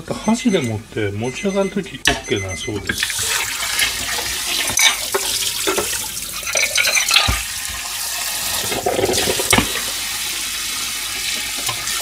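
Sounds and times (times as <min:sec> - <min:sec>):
tap water splashing into saucepan: 0:02.9 - 0:10.1
metal pan and lid clanking: 0:04.7 - 0:07.5.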